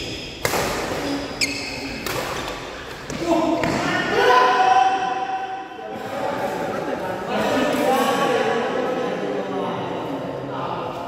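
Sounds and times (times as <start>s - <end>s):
racket hitting shuttlecock: 0.0s - 3.8s.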